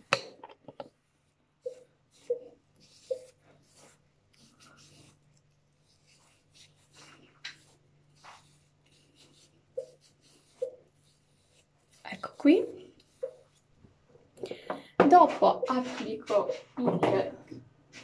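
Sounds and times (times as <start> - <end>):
cotton pad rubbing skin: 1.7 - 13.7.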